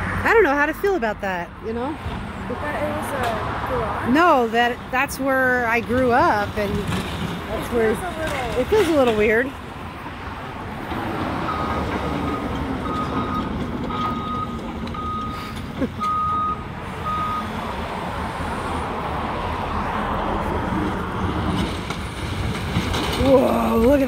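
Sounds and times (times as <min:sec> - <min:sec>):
diesel excavator engine running: 0:04.3 - 0:24.0
backup alarm beeping: 0:11.5 - 0:15.4, 0:16.0 - 0:17.5.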